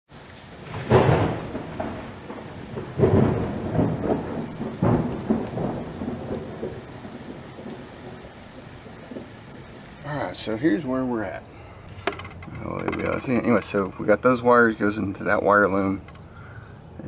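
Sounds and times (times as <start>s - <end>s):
rain hissing: 0.1s - 17.0s
rolls of thunder: 0.6s - 10.0s.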